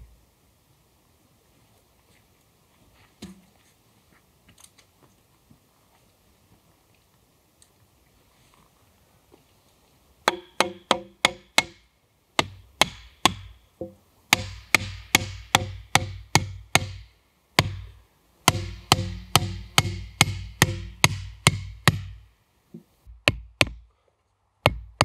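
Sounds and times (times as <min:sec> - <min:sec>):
hatchet knocking wooden stake: 0:10.3 - 0:11.8, 0:12.4 - 0:17.0, 0:17.6 - 0:17.9, 0:18.5 - 0:22.2, 0:23.1 - 0:23.8, 0:24.6 - 0:25.0.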